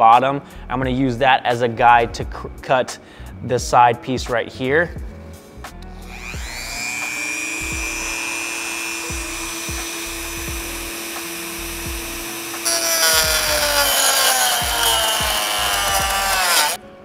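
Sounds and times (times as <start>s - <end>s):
rotary tool cutting plastic: 5.9s - 16.8s.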